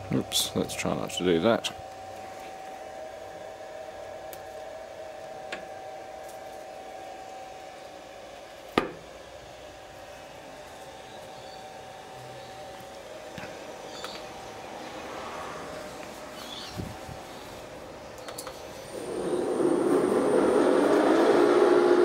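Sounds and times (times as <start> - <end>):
lathe hum with whine: 0.0 - 22.0.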